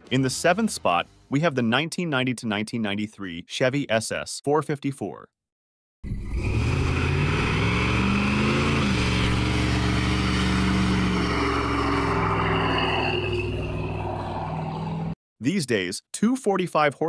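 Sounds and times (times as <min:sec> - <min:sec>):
car engine revving hard: 0:06.1 - 0:15.1
tyres squealing on pavement: 0:08.9 - 0:14.9.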